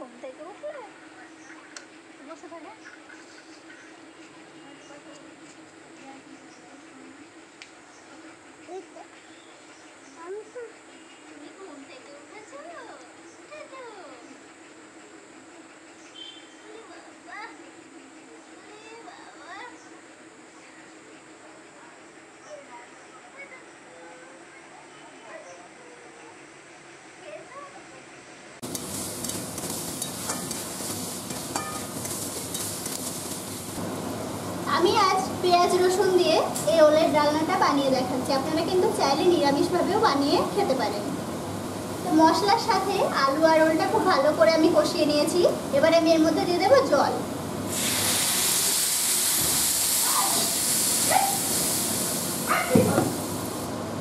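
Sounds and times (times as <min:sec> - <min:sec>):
vegetables sizzling in pan: 0:28.6 - 0:53.8.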